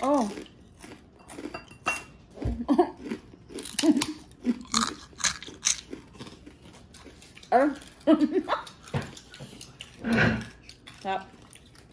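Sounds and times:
crispy food being chewed: 0.0s - 11.9s.

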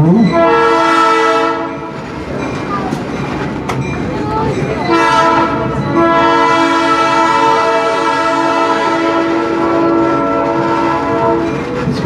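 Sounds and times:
locomotive air horn blasts: 0.3s - 1.9s, 4.9s - 11.6s.

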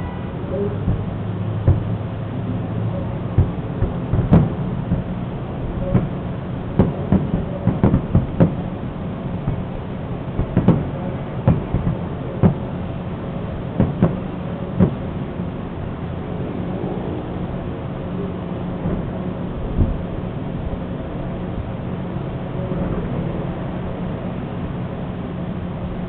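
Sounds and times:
fireworks bursting: 0.0s - 16.3s
steady low hum: 0.0s - 26.0s.

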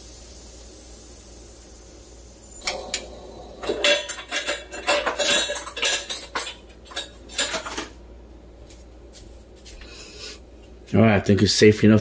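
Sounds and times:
faint steady hiss: 0.0s - 6.6s
metal utensils clattering: 3.6s - 8.0s.

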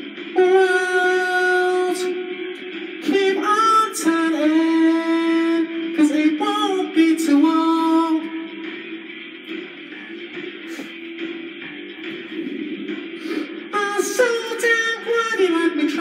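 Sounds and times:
man singing long notes: 0.4s - 8.5s, 12.3s - 16.0s.

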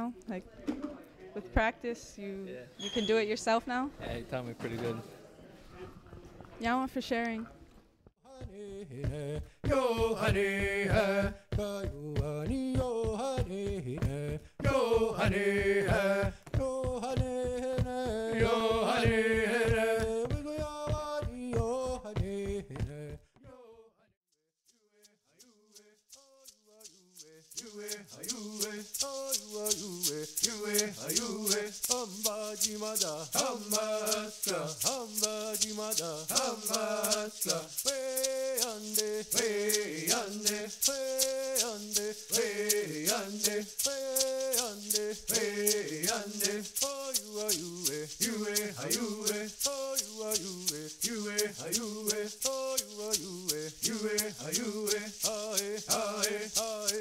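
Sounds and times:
rattle shaken in a beat: 8.3s - 23.4s, 24.6s - 57.0s
singing: 8.3s - 23.9s, 27.2s - 57.0s.

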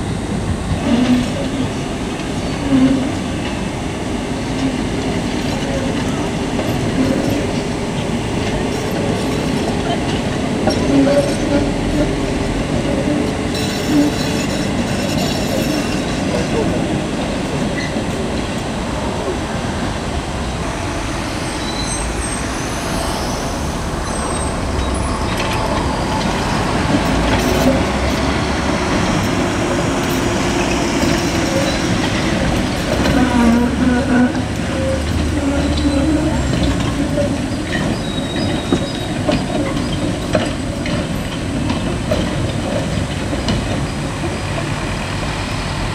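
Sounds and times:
street traffic: 0.0s - 45.9s
tram wheels rumbling over rails: 0.0s - 45.9s
high wheel squeals: 13.5s - 16.6s, 20.8s - 28.6s, 30.6s - 40.2s.

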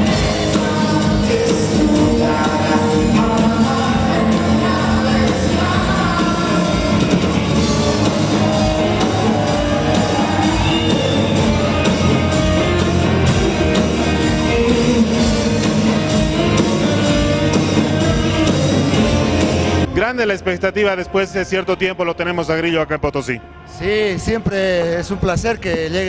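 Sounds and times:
person singing: 0.0s - 19.3s
rock band playing live: 0.0s - 20.0s.

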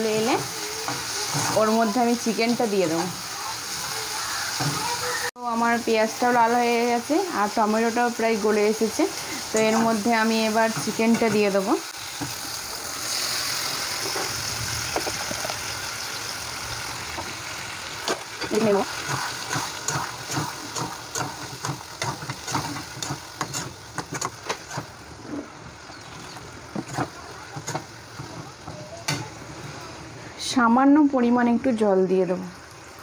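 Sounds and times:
chicken sizzling in hot oil: 0.0s - 30.1s
spatula scraping a pan: 0.1s - 2.0s, 18.6s - 25.5s, 26.7s - 29.8s.

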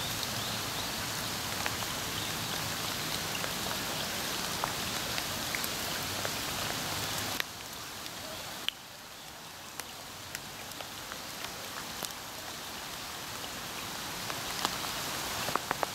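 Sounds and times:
rain hissing: 0.0s - 15.9s
sharp raindrop ticks: 15.4s - 15.9s.

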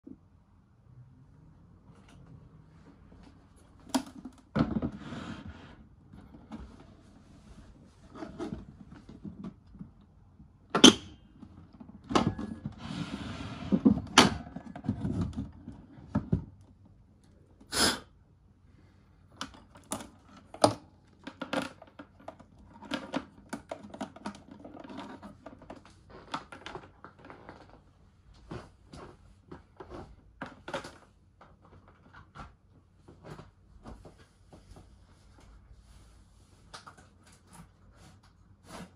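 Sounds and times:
power cord rustling and clatter: 11.4s - 16.7s, 19.5s - 34.9s.

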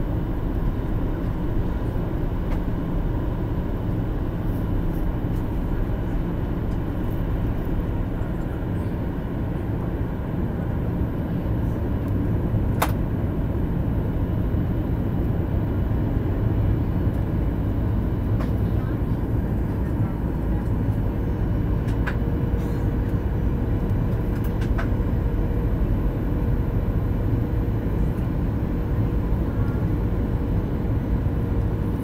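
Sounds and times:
jet engines rumbling: 0.0s - 32.0s.

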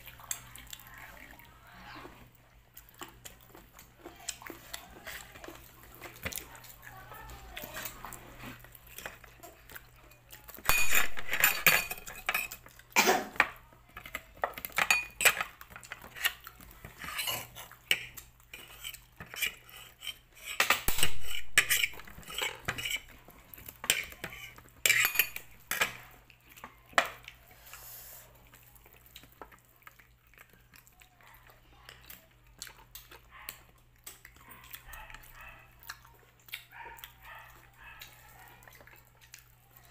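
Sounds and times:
dishes clinking and knocking: 10.6s - 12.6s, 20.6s - 23.0s
tableware scraping on table: 10.7s - 12.6s, 18.6s - 23.1s, 23.9s - 25.4s.

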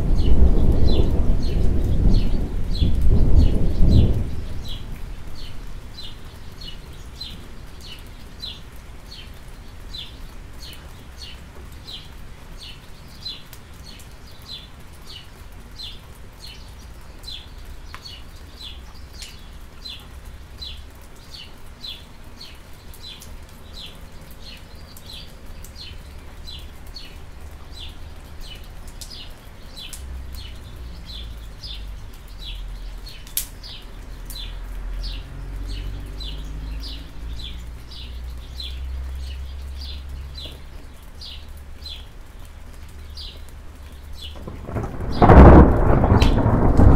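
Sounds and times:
light rain with drips: 0.0s - 46.9s
low rumble: 44.4s - 46.9s.

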